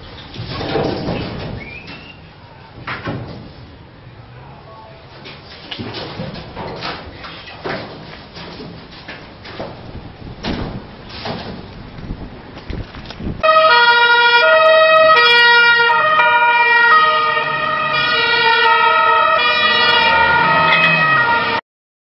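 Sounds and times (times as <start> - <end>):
police siren two-tone: 13.4 - 21.6.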